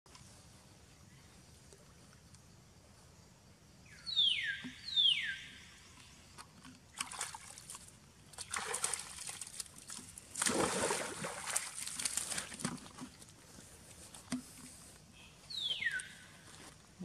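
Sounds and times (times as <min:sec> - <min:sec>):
monkeys splashing in water: 0:07.0 - 0:13.2.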